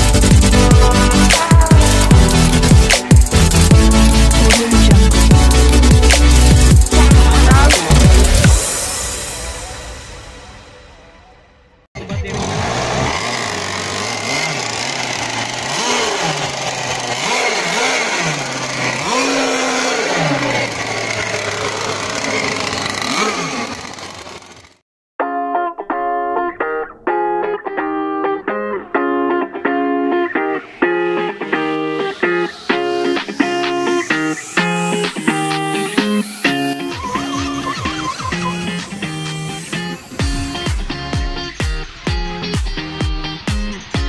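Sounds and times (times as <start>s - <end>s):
two-stroke engine revving: 0.0s - 8.6s, 12.0s - 24.8s
electric guitar strumming chords: 25.2s - 44.0s.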